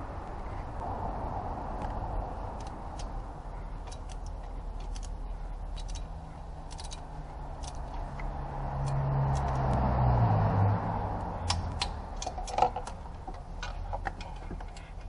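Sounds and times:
low steady hum: 0.0s - 15.0s
ratchet wrench clicking: 3.8s - 8.0s, 8.8s - 9.7s.

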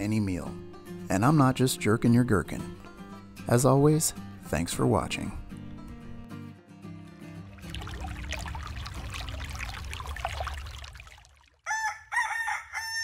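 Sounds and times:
stream running: 7.4s - 11.7s
rooster crowing: 11.6s - 13.0s.

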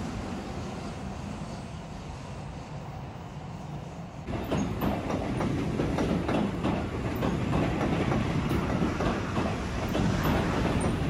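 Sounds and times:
train rumble: 0.0s - 11.0s
train wheels clattering over rail joints: 4.3s - 11.0s.

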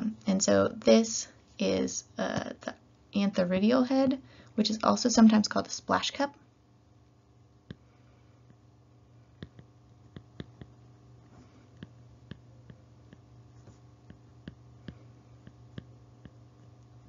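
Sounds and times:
steady low hum: 0.0s - 17.0s
stylus tapping on tablet screen: 9.4s - 10.8s, 11.7s - 16.7s.

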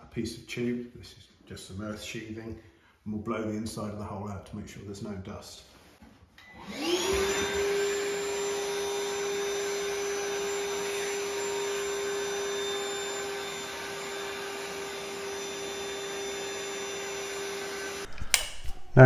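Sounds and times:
vacuum cleaner whining: 6.4s - 18.2s.

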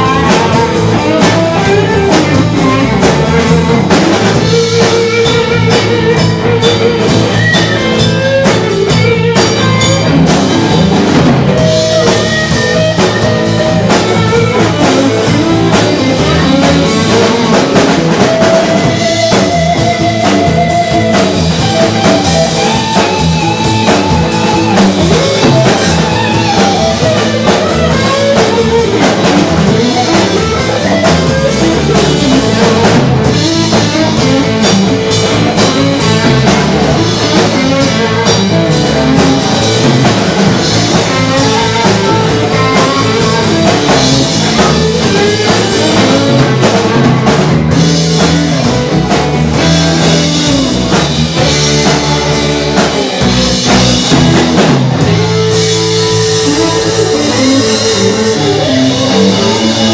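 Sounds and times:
bass guitar: 0.0s - 59.9s
drum kit: 0.0s - 59.9s
electric guitars: 0.0s - 59.9s
lead guitar line bending: 0.0s - 59.9s.

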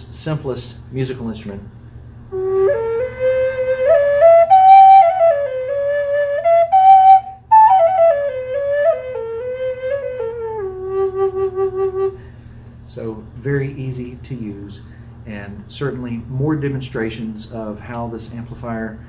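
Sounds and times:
steady low hum: 0.0s - 19.0s
flute playing slow melody: 2.3s - 12.3s.

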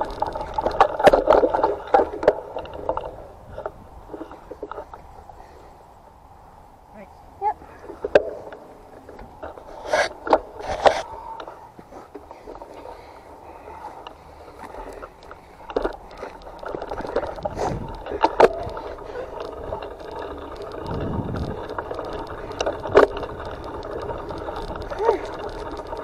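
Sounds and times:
bike rattling and knocking: 0.0s - 5.2s, 7.9s - 26.0s
tyres rolling on dirt: 0.0s - 6.8s, 7.4s - 26.0s.

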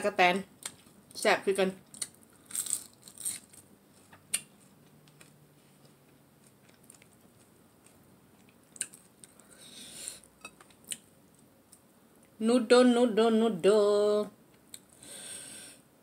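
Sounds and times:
fried shrimp crunching: 1.8s - 9.4s
quiet chewing: 3.9s - 12.4s.

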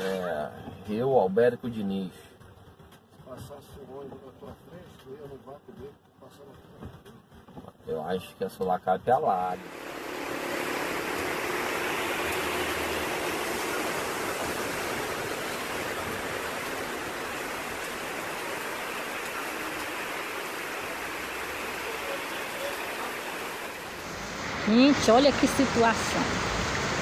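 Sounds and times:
torrential rain pouring: 9.4s - 27.0s.

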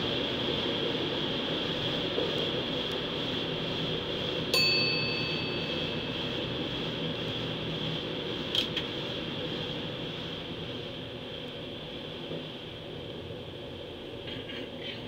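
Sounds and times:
electric train rumbling: 0.0s - 15.0s
high metallic ring: 4.6s - 7.2s.

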